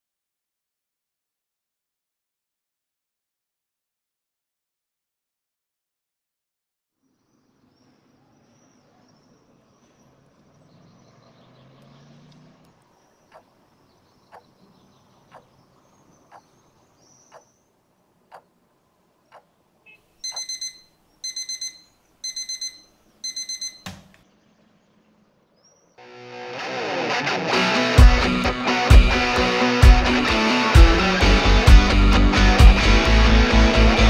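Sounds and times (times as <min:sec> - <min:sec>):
electronic alarm beeping: 0:19.9 - 0:24.1
clock ticking: 0:20.2 - 0:24.0
thump: 0:23.8 - 0:24.2.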